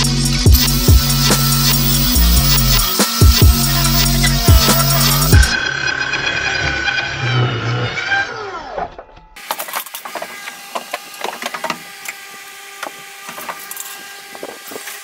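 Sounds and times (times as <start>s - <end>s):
electronic background music: 0.0s - 8.6s.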